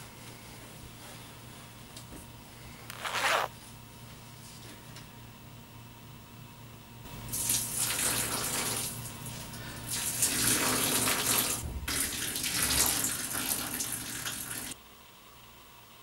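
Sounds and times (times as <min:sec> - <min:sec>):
urine splashing into bathtub: 0:07.3 - 0:09.0, 0:09.9 - 0:14.8.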